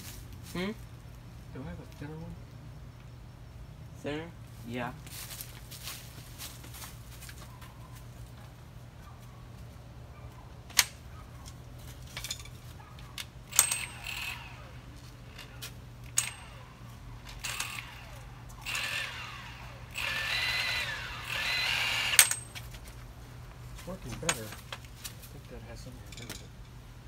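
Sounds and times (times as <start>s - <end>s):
metal tools clinking: 12.0s - 14.4s, 15.3s - 17.9s, 22.1s - 22.6s, 24.1s - 24.7s, 26.0s - 26.8s
power tool bursts: 13.5s - 14.8s, 17.3s - 22.5s.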